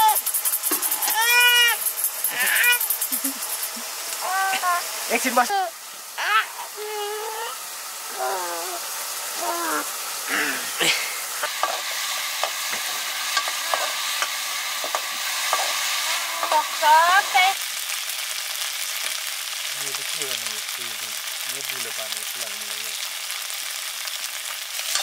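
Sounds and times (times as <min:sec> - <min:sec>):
food sizzling in a wok: 0:00.0 - 0:25.0
short high voice sounds: 0:05.5 - 0:08.8, 0:09.4 - 0:10.8.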